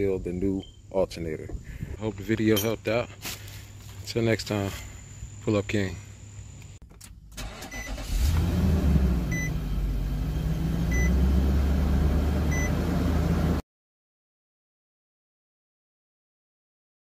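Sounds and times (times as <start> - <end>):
car engine starting and idling: 6.9 - 13.6
dashboard warning chime beeps: 9.3 - 9.6, 10.9 - 11.2, 12.5 - 12.8.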